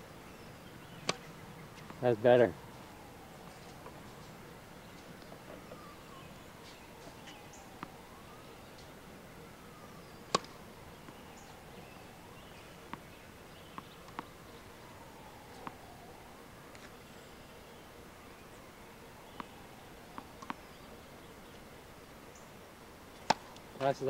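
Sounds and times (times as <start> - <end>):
racket striking tennis ball: 1.0 - 2.0, 10.3 - 10.5, 23.2 - 23.6.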